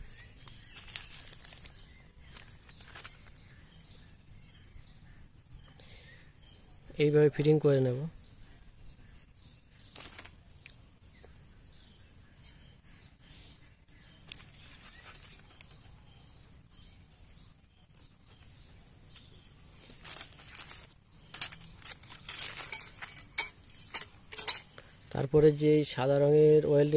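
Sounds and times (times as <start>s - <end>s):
small metallic clicks: 20.0s - 24.8s.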